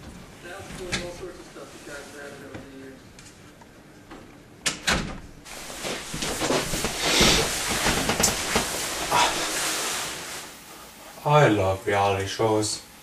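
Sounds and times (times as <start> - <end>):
bedding rustling and soft knocks: 5.0 - 10.4.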